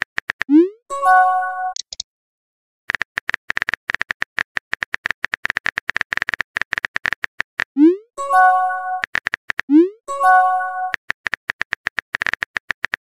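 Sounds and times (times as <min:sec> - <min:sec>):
message arrival chime: 0:00.9 - 0:01.8, 0:08.2 - 0:09.0, 0:09.8 - 0:11.0
rapid keyboard tap clicks: 0:02.9 - 0:07.6, 0:09.0 - 0:09.7, 0:11.0 - 0:13.0.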